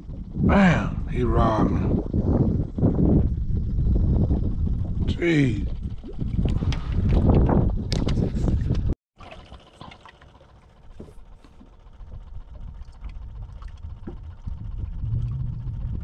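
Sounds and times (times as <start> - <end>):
low rumble on microphone: 0.0 - 9.0, 10.8 - 16.0
waves lapping against boat hull: 5.7 - 15.6.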